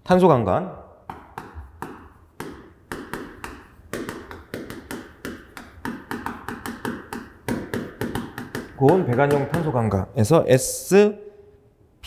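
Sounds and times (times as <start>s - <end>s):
chalk tapping and scraping: 1.1s - 10.0s.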